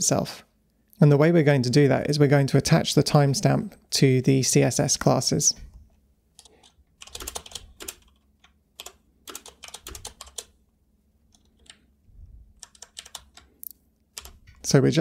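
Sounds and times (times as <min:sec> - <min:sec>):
typing on computer keyboard: 0:06.4 - 0:10.6, 0:11.3 - 0:11.9, 0:12.6 - 0:13.5, 0:14.2 - 0:14.6.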